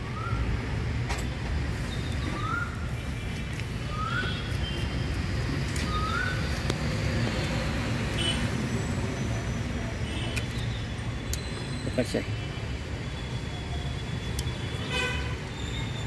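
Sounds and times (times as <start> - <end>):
low traffic rumble: 0.0 - 16.0.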